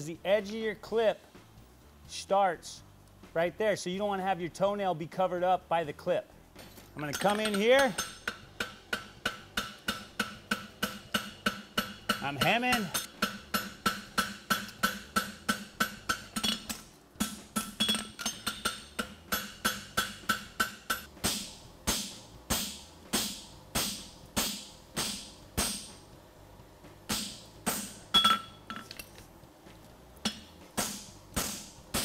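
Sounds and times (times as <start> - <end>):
hammer striking metal on anvil: 6.9 - 26.0, 27.1 - 29.0, 30.2 - 32.0.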